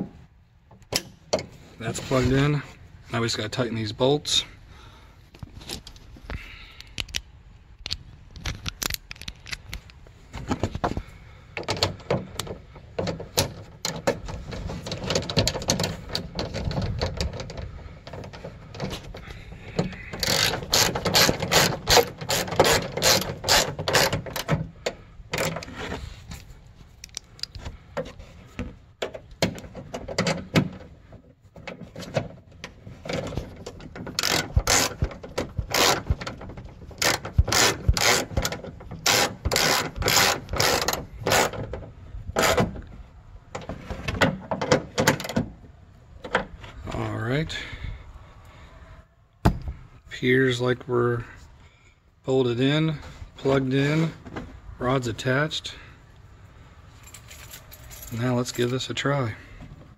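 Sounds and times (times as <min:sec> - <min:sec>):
hand ratchet clicking: 0:20.1 - 0:24.5, 0:34.1 - 0:36.4, 0:37.0 - 0:41.6.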